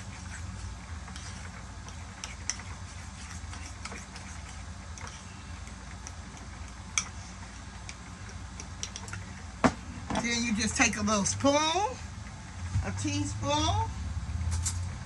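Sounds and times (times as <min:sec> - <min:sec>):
steady low hum: 0:00.0 - 0:15.0
spoon clicking and scraping bowl: 0:01.0 - 0:09.3.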